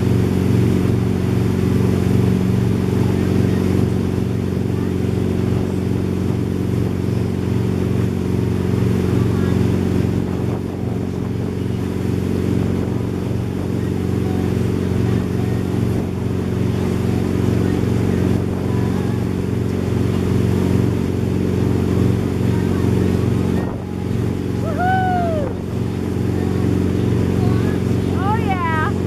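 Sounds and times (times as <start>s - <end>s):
boat engine droning: 0.0s - 29.0s
wake rushing: 0.0s - 29.0s
wind: 0.0s - 29.0s.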